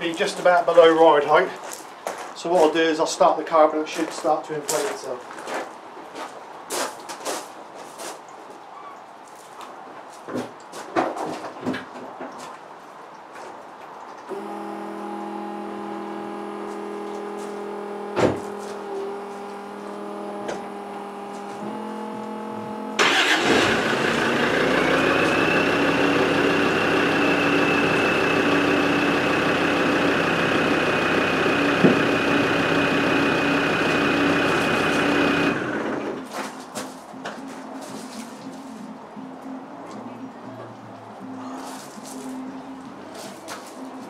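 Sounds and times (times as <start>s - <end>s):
steady hum: 14.3s - 35.8s
high steady whine: 14.3s - 36.2s
diesel engine running: 14.3s - 36.3s.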